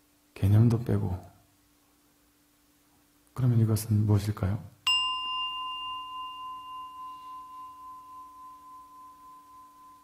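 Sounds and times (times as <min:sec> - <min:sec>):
singing bowl ringing: 0:04.9 - 0:10.0.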